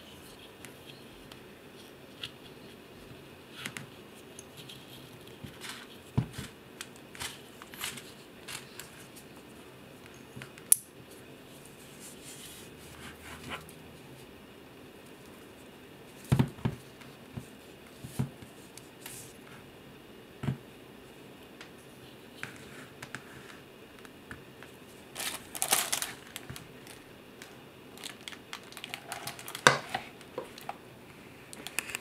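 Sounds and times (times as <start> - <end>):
plastic crinkling: 25.0 - 30.8.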